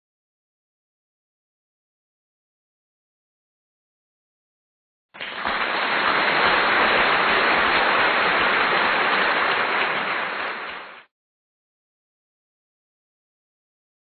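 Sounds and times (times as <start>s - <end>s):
steady rushing hiss: 5.2s - 11.1s.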